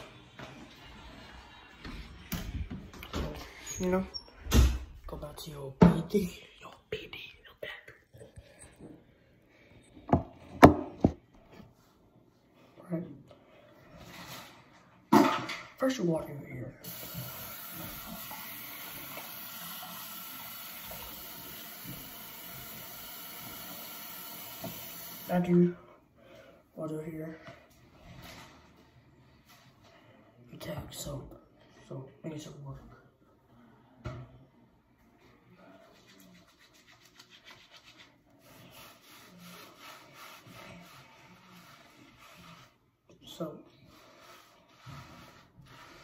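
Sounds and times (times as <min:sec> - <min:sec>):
faucet running into sink: 0:16.8 - 0:25.4
hands scrubbing wet hair: 0:35.8 - 0:42.8.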